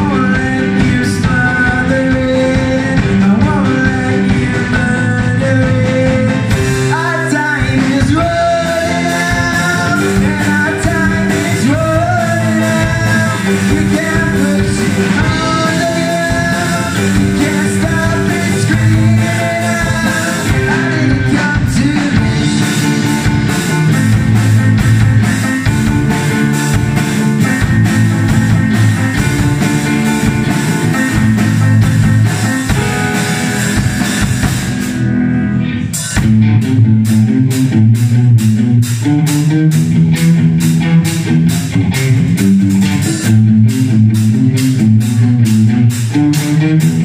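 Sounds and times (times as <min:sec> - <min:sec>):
male singer: 0:00.0 - 0:22.9
keyboard: 0:00.0 - 0:39.8
drum kit: 0:00.0 - 0:47.0
electric guitar: 0:00.0 - 0:47.0.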